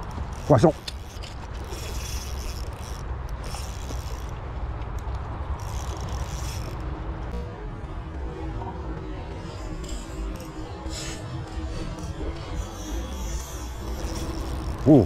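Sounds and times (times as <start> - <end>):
spinning reel clicking: 0.3 - 4.3, 5.6 - 6.9, 9.8 - 15.0.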